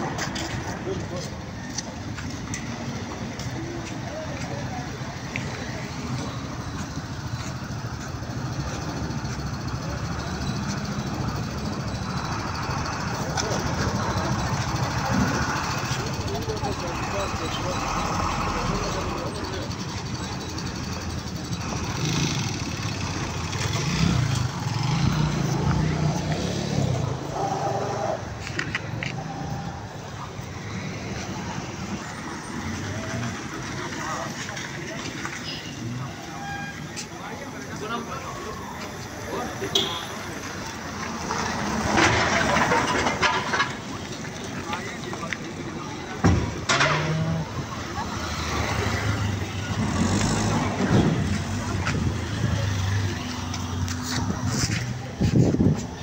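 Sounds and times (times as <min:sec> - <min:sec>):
background voices: 0:00.0 - 0:56.0
vehicle engine idling: 0:00.8 - 0:27.5.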